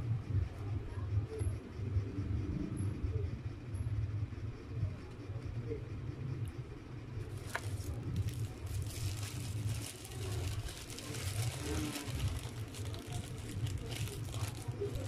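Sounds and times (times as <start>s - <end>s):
ceiling fan rumbling: 0.0s - 15.0s
paper wrapper crinkling: 7.3s - 15.0s.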